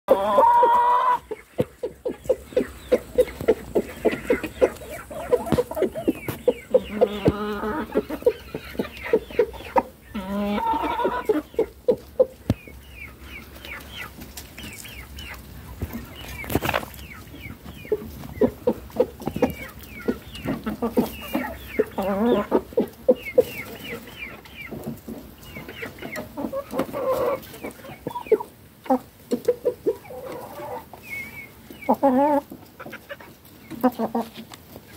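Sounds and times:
chickens clucking: 0:00.0 - 0:34.9
chicken higher longer calls: 0:00.1 - 0:01.3.

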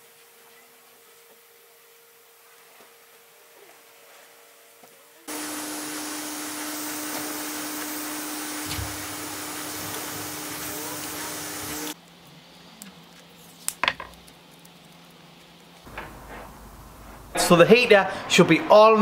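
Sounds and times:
heat gun blowing with fan whine: 0:05.3 - 0:12.0.

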